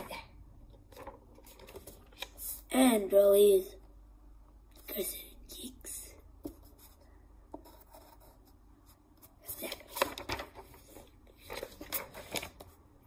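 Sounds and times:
drawing paper rustling: 0.8 - 2.4, 6.4 - 13.0
pencil scratching on paper: 7.6 - 9.4.

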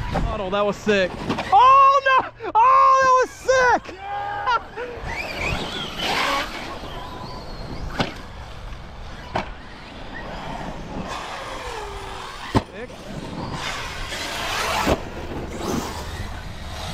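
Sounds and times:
electric motor whining: 4.8 - 16.9.

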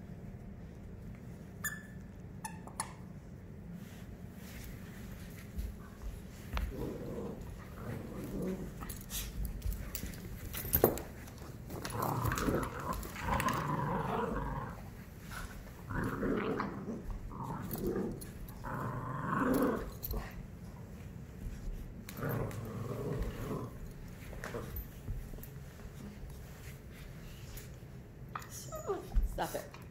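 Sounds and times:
dogs growling in play: 5.7 - 20.8, 21.6 - 25.5.

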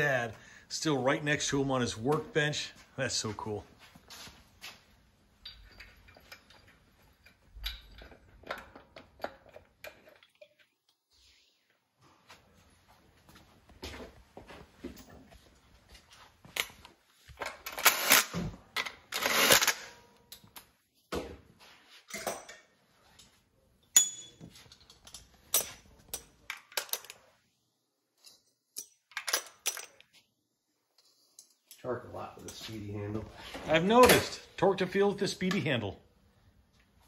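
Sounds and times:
metal tools clinking: 5.4 - 10.7, 22.0 - 27.3, 28.2 - 30.2.

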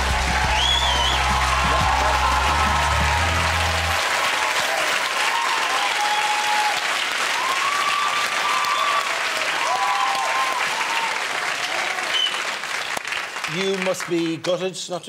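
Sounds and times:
music with bass line: 0.0 - 4.0
audience applauding: 0.0 - 14.7.

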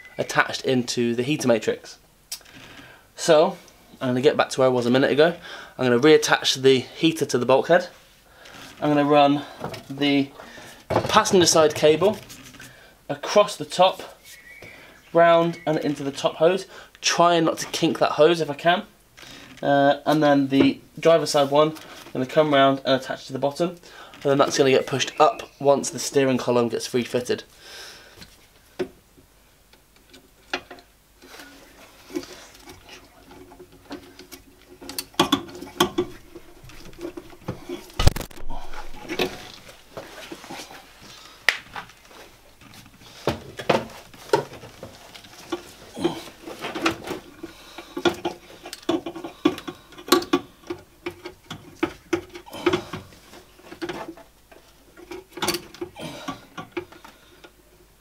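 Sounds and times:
hands clicking and knocking on parts: 32.1 - 39.6, 42.7 - 57.6.

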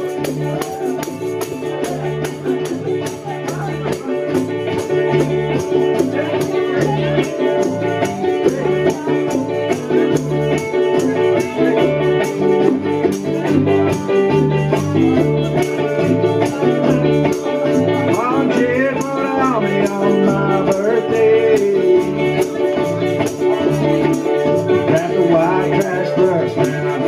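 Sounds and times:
electric bass line: 0.0 - 27.0
hand percussion beat: 0.0 - 27.0
strummed ukuleles: 0.0 - 27.0
voices singing: 0.0 - 27.0.

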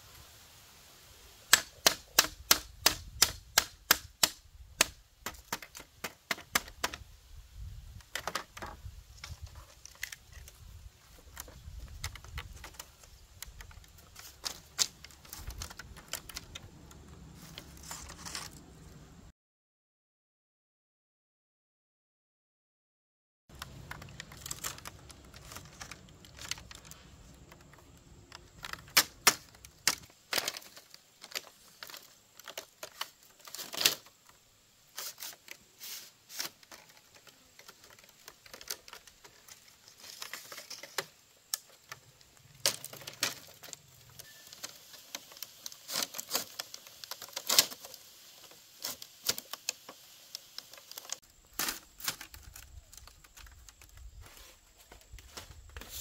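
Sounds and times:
small hard objects clicking: 8.0 - 18.6, 23.5 - 34.4, 36.4 - 54.1.

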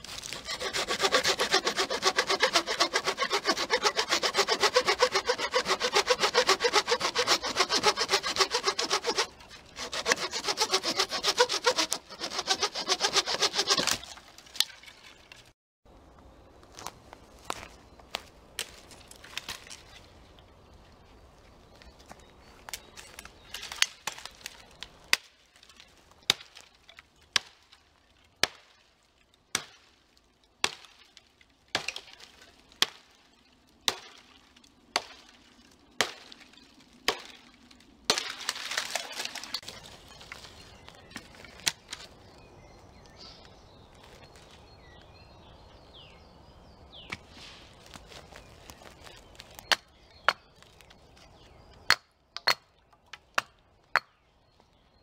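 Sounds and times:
hatchet chopping branch: 0.0 - 14.7, 28.4 - 28.8, 29.5 - 29.9, 30.6 - 33.1, 33.8 - 35.4, 36.0 - 37.4, 38.1 - 40.5
wood crackling: 0.0 - 15.5, 21.3 - 42.4, 47.1 - 51.9.

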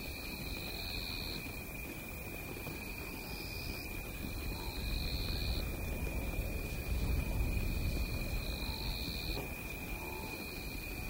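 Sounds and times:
insect high whine: 3.0 - 11.0.

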